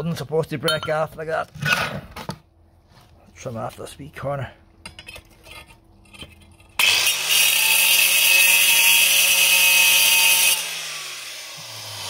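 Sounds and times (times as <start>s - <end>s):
wet stone-cutting saw cutting: 6.8s - 12.0s
saw motor winding down: 8.6s - 12.0s.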